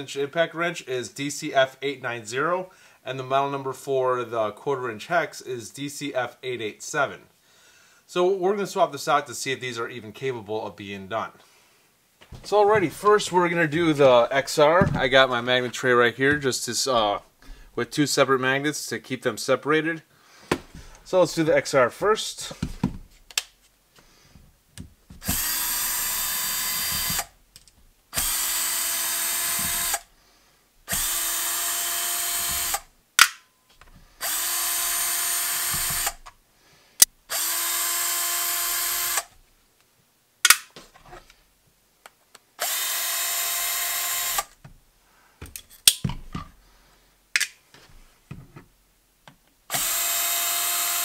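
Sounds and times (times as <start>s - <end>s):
cordless screwdriver whirring: 25.2s - 27.4s, 28.1s - 30.1s, 30.9s - 32.9s, 34.2s - 36.3s, 37.3s - 39.3s, 42.6s - 44.6s, 49.7s - 51.0s.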